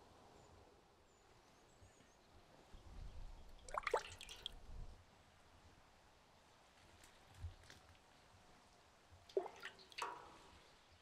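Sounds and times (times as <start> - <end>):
water drops plinking into barrel: 3.6 - 4.6, 9.3 - 10.6.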